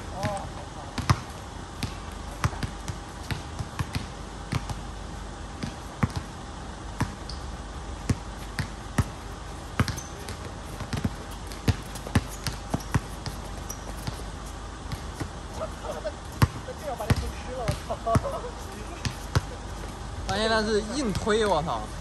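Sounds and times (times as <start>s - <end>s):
basketball bouncing on hard court: 0.2s - 4.9s, 5.6s - 6.4s, 7.0s - 7.4s, 8.0s - 14.3s, 14.9s - 15.4s, 16.4s - 18.4s, 19.0s - 19.6s.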